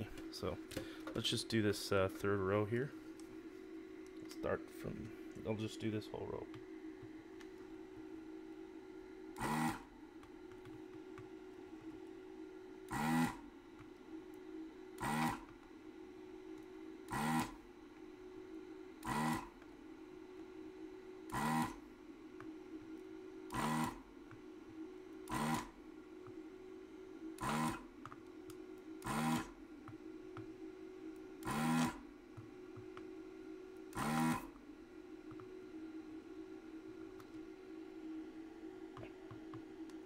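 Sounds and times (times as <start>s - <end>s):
steady low hum: 0.0s - 40.0s
vacuum pump bursts: 9.3s - 9.9s, 12.8s - 13.5s, 14.9s - 15.5s, 17.1s - 17.6s, 19.0s - 19.5s, 21.3s - 21.8s, 23.5s - 24.0s, 25.2s - 25.8s, 27.3s - 27.9s, 29.0s - 30.2s, 31.4s - 32.6s, 33.9s - 34.6s.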